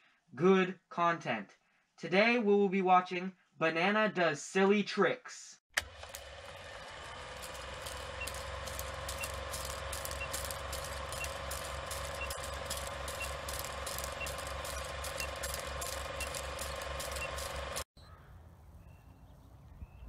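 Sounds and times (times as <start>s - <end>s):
film projector whirring: 5.8s - 17.9s
crackling clicks: 7.2s - 17.9s
short high beeps: 8.0s - 17.6s.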